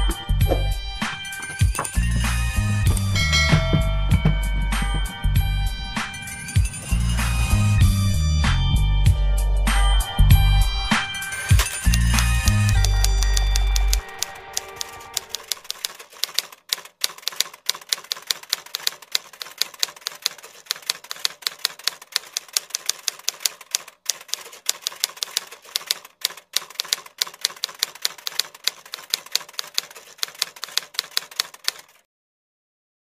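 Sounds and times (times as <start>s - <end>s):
keyboard key clacks: 0.5s - 2.1s, 11.4s - 32.0s.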